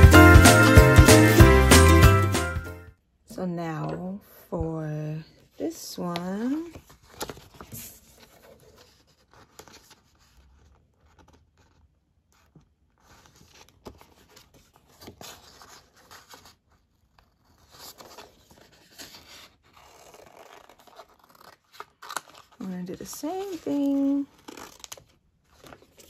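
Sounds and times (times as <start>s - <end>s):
paper sheets rustling: 6.0s - 11.7s, 17.3s - 26.0s
scissors cutting paper: 17.2s - 25.9s.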